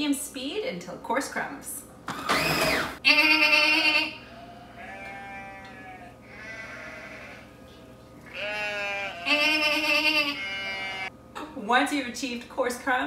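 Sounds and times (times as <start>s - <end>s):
woman imitating goat bleats: 3.0s - 4.2s, 8.3s - 11.1s.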